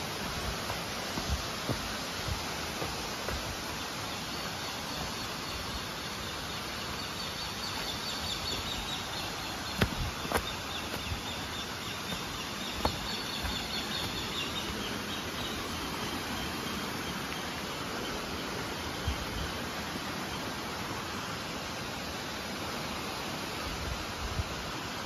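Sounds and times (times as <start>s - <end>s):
footsteps on stony path: 0.0s - 5.2s, 7.8s - 15.0s
flowing stream and waterfall: 0.0s - 25.0s.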